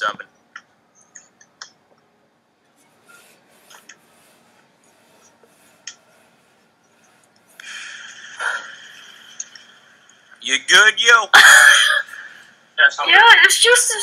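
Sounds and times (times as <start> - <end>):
soft rubbing and rustling: 2.7 - 9.5.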